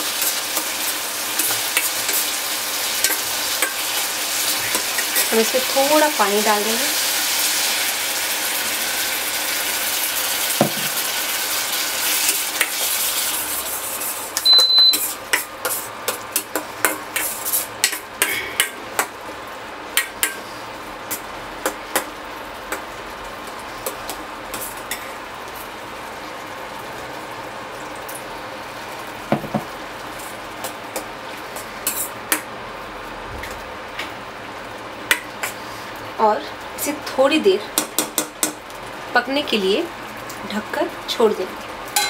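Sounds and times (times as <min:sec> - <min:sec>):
water sizzling in hot pan: 0:00.0 - 0:42.0
short high beep: 0:14.4 - 0:15.0.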